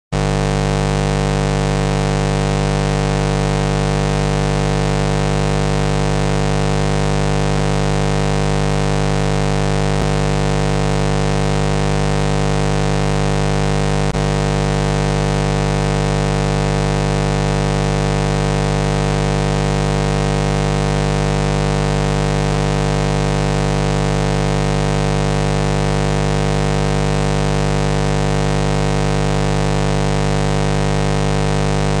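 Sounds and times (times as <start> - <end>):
electrical buzz: 0.2 - 16.0, 30.3 - 32.0.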